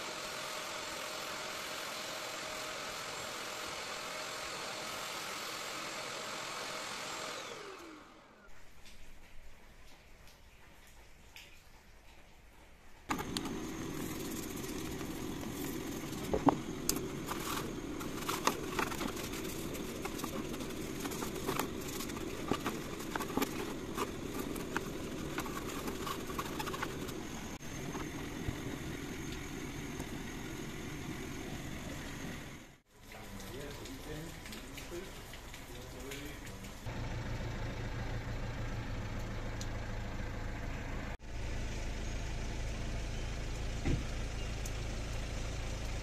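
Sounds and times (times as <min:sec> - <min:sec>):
low mechanical hum: 0:00.0 - 0:46.0
brush scrubbing plastic: 0:13.1 - 0:28.2.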